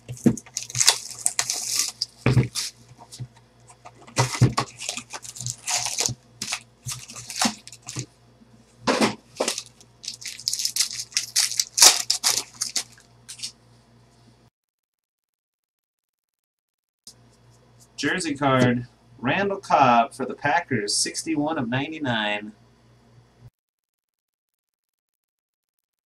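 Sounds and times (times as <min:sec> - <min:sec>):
foil wrappers tearing and crinkling: 0:00.0 - 0:03.2, 0:03.8 - 0:08.1, 0:09.3 - 0:13.5.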